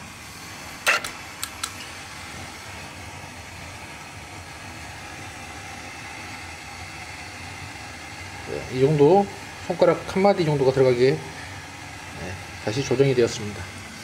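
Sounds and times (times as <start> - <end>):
steady background hum: 0.0 - 14.0.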